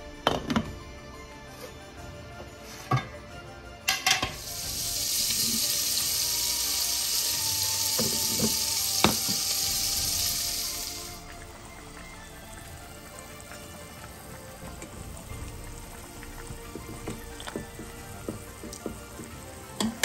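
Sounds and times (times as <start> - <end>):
soup boiling and bubbling: 4.2 - 20.0.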